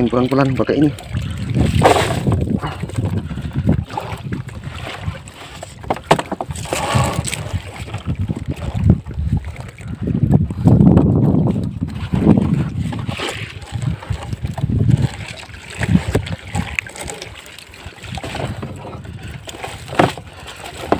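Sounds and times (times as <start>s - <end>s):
low wind rumble on microphone: 0.0s - 20.9s
water splashes: 0.0s - 20.9s
wet net rustling: 11.9s - 20.9s.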